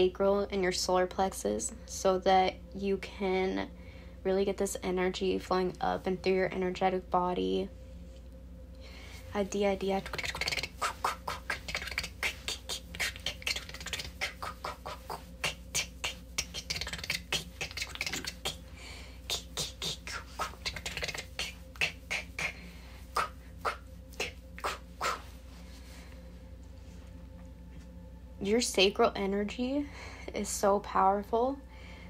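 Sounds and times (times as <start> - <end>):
woman making tongue clicks: 10.0 - 18.7, 19.3 - 22.6, 23.2 - 25.2
breathy hissing sounds: 10.1 - 26.2.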